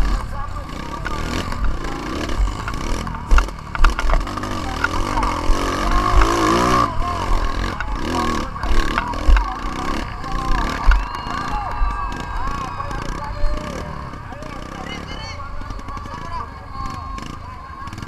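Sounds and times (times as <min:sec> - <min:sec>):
dirt bike engine revving: 0:00.0 - 0:18.0
bike knocking over bumps: 0:01.1 - 0:12.1.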